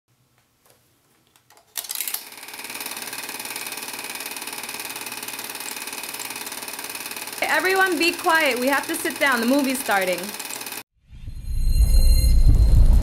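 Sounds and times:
film projector clattering: 1.5 - 10.8.

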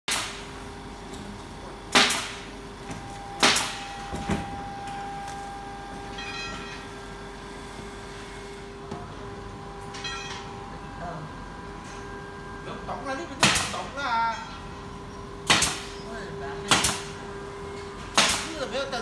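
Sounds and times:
electronic machine tones: 3.2 - 7.0.

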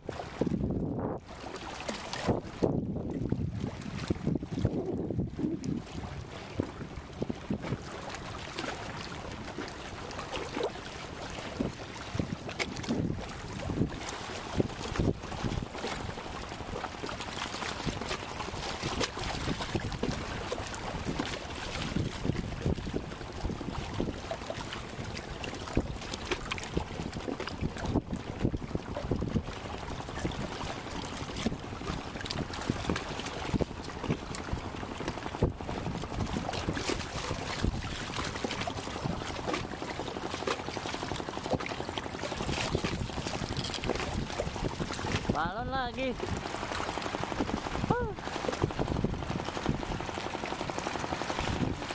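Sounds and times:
wind buffeting microphone: 0.0 - 39.8, 41.1 - 51.9
water sloshing among concrete blocks: 0.0 - 51.9
small splashes and knocks: 1.2 - 4.8, 5.6 - 45.4.

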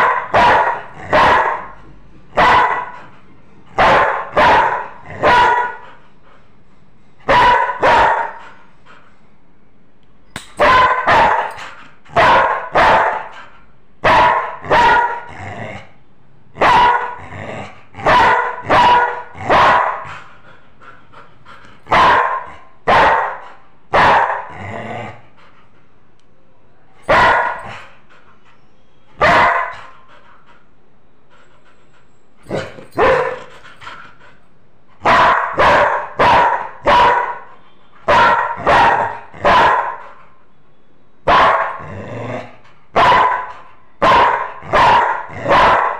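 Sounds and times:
dog barking: 0.0 - 1.8, 2.4 - 3.0, 3.8 - 5.8, 7.2 - 8.4, 10.6 - 13.4, 14.0 - 15.3, 16.6 - 17.2, 18.0 - 20.1, 21.9 - 24.5, 27.0 - 27.8, 29.2 - 29.9, 32.5 - 33.5, 35.0 - 40.2, 41.3 - 41.8, 43.0 - 45.9.

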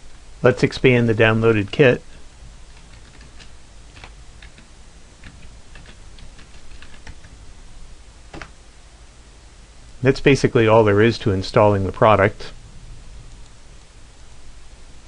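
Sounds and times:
computer keyboard typing: 2.7 - 7.4.

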